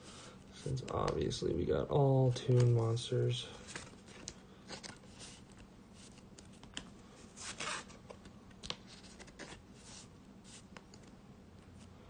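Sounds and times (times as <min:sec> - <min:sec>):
trading cards rustling: 0:02.1 - 0:10.8.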